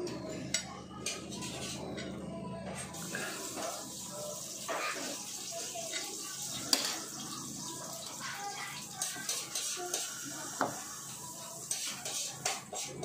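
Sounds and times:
cutlery clinking on plate: 11.7 - 13.0.

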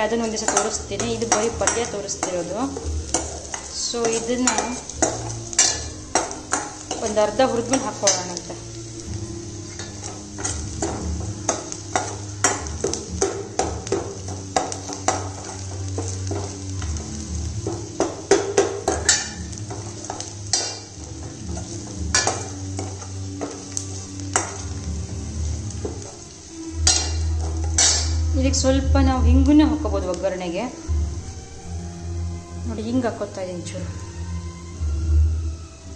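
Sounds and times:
steel spoon scraping a pan: 0.0 - 28.6
spices sizzling in hot oil: 0.0 - 35.9.

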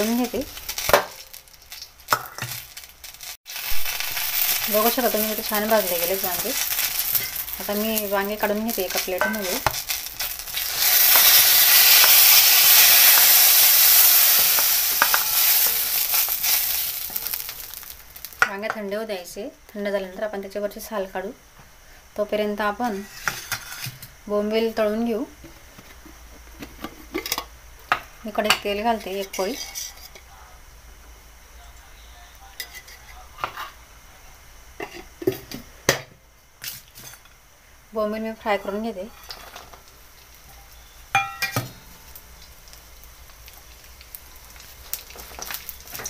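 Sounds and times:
eggplants sizzling in hot oil: 0.0 - 31.5, 32.5 - 46.0
wooden spatula scraping pan: 22.9 - 24.0.

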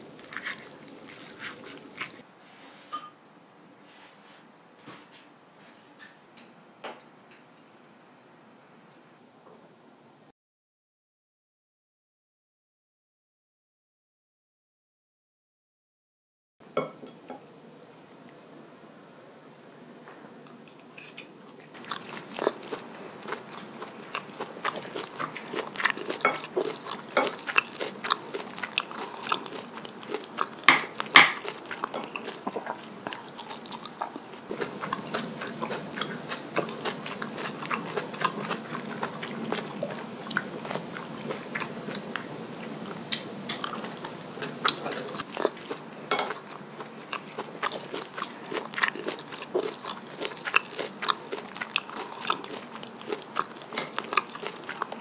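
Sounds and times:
person chewing food: 0.0 - 2.2, 20.5 - 55.0
moist clicks and crunches: 0.1 - 2.2.

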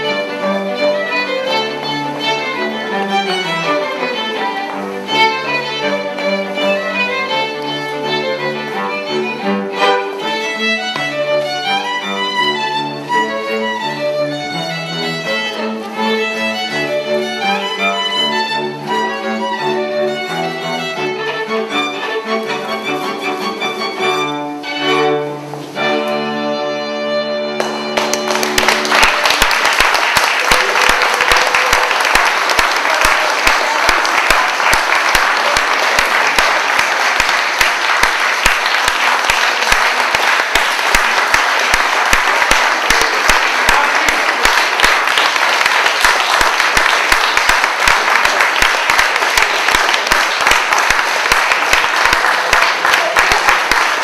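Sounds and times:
audience applauding: 27.6 - 54.0.

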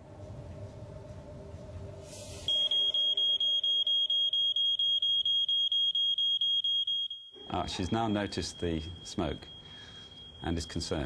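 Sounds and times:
smoke alarm pulsing tone: 2.5 - 11.0.

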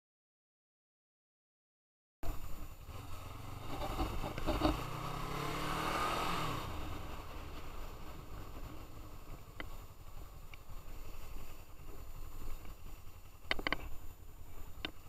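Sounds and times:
motorcycle engine accelerating: 2.6 - 11.9.

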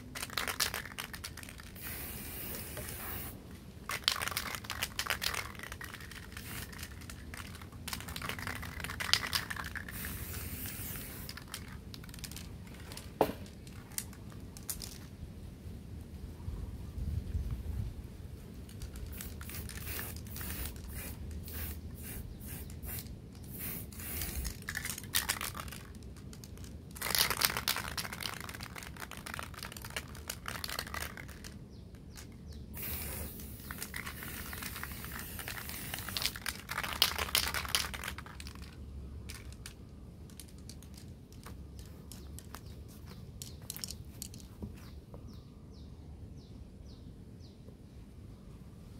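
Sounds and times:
spray paint hissing: 0.1 - 12.5, 18.8 - 39.7, 40.4 - 44.4
spray can handling clicks: 32.2 - 38.7.

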